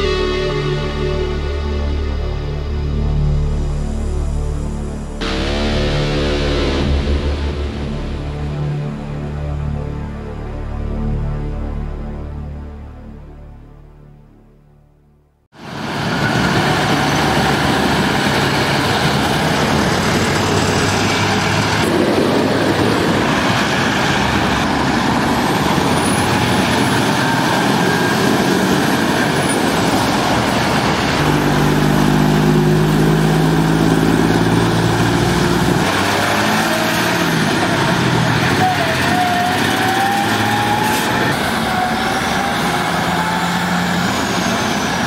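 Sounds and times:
diesel lorries driving: 15.6 - 45.0.

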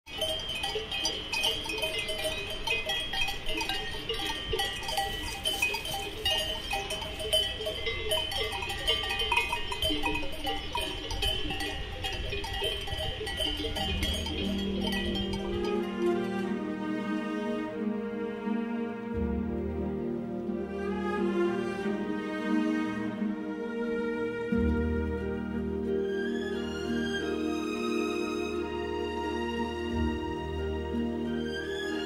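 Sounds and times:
cowbells clanging: 0.1 - 16.7
slow bowed string music: 13.7 - 32.0.

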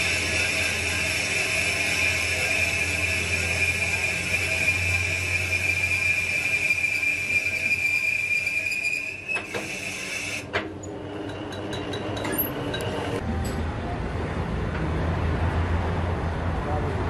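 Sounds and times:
lathe high-pitched whine: 0.0 - 13.2.

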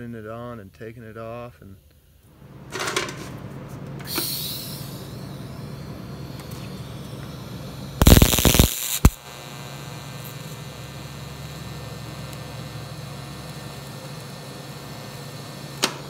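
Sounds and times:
welder electrical hum: 0.0 - 16.0
welding crackling burst: 4.1 - 16.0.

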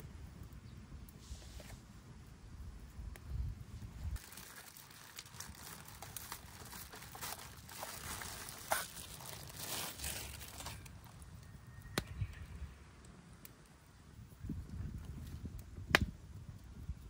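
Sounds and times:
hissing of grilling food: 1.0 - 2.4
campfire crackling and popping: 1.8 - 12.4, 13.0 - 17.0.

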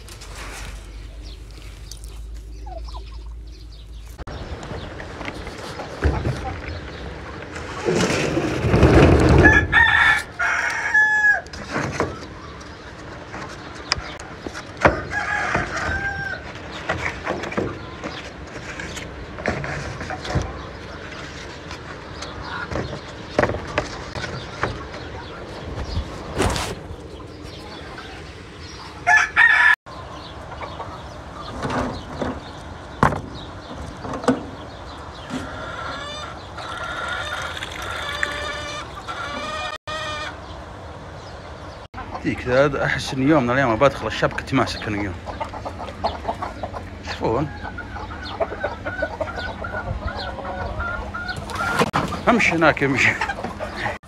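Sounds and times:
hens calling: 0.0 - 8.2, 9.2 - 54.0
rooster crowing: 9.4 - 11.6, 14.9 - 16.5, 29.0 - 29.8.

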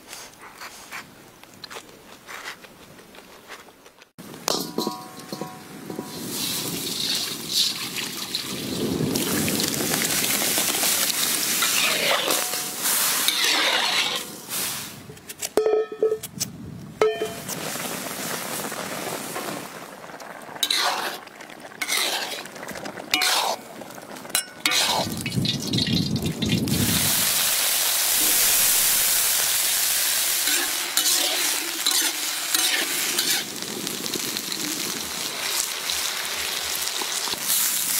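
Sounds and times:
pots and utensils clinking: 4.4 - 7.3, 11.6 - 14.5, 17.0 - 17.6, 23.1 - 23.7, 24.3 - 26.6, 30.4 - 33.5
liquid stirred and poured: 20.6 - 27.0.

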